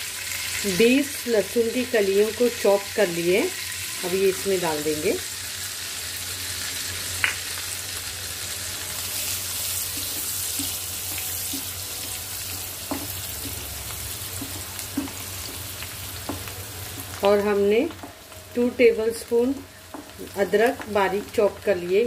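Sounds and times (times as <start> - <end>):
garlic sizzling in hot oil: 0.0 - 22.0.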